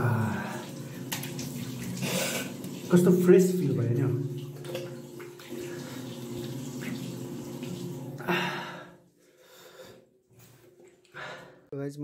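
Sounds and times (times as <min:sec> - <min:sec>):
tap water running and splashing: 0:00.0 - 0:08.8.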